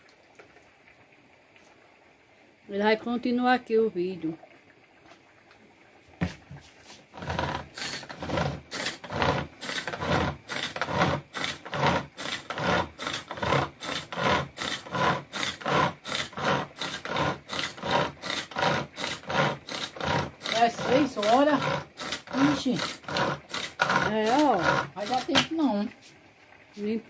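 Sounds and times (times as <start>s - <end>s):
rhythmic back-and-forth scraping: 6.8s - 26.1s.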